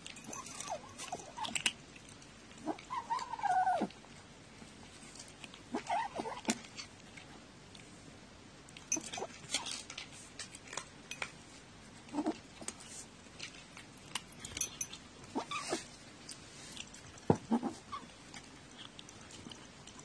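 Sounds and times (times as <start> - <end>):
kitten crunching kibble: 0.0 - 20.0.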